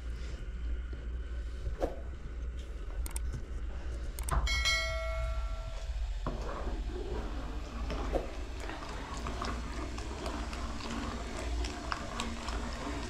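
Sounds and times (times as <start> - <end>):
ringing metallic clank: 4.4 - 5.9.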